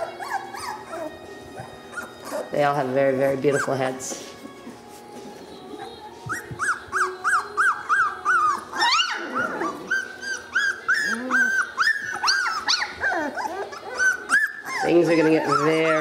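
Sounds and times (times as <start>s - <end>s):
puppy yelp: 0.0s - 2.6s, 5.8s - 16.0s
puppies whimpering: 0.0s - 16.0s.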